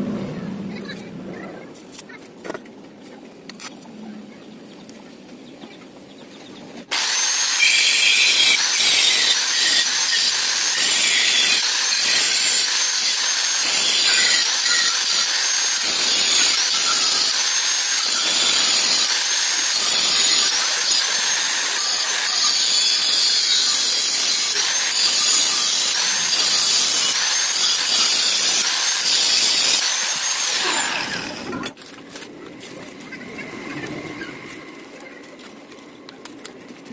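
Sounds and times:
angle grinder cutting metal: 6.9 - 31.8.

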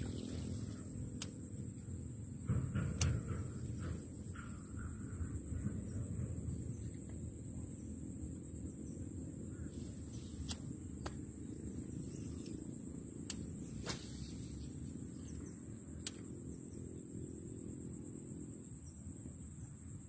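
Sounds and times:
insect drone: 0.0 - 20.0
wind rumble on microphone: 1.6 - 10.1.

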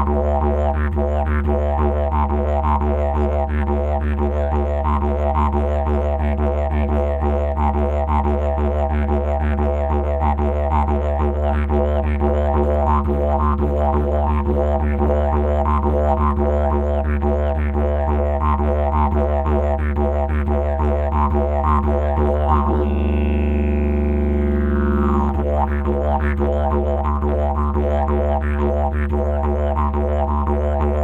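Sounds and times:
didgeridoo drone: 0.0 - 31.0
high call gliding downward: 22.7 - 25.4.

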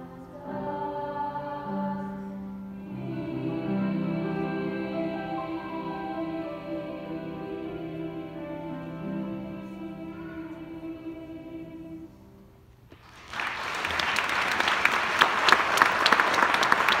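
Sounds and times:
choir holding a chord: 0.0 - 12.4
audience applause: 13.0 - 17.0.

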